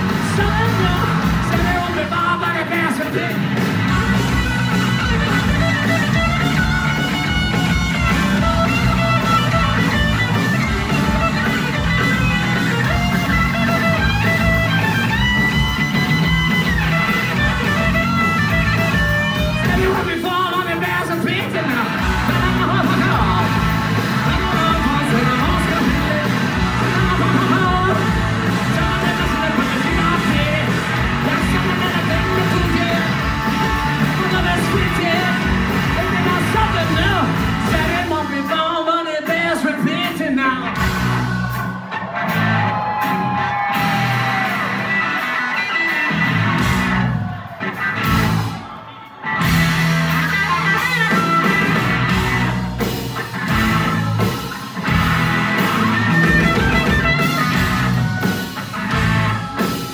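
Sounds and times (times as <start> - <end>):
bass and drums: 0.0 - 59.9
electric guitar: 0.0 - 59.9
person singing: 19.3 - 42.0.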